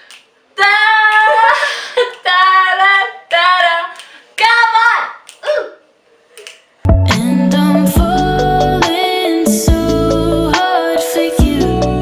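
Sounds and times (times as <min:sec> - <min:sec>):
finger snaps: 0:00.0 - 0:00.3, 0:06.3 - 0:07.2
girls singing unaccompanied: 0:07.2 - 0:12.0.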